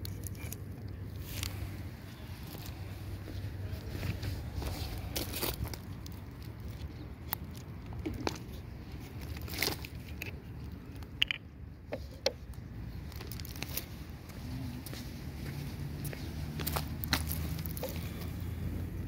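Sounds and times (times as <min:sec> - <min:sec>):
stones clicking together: 0:09.2 - 0:11.5
footsteps on gravel: 0:13.2 - 0:18.4.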